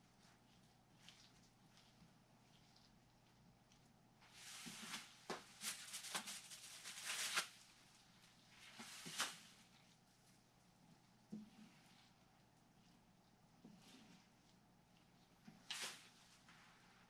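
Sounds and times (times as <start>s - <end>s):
materials rustling and crinkling: 0.0s - 10.5s, 15.3s - 17.0s.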